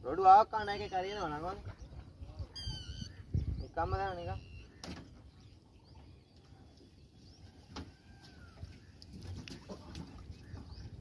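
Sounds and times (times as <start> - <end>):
water and wind noise: 0.0 - 11.0
faint bird chirps: 0.6 - 9.0.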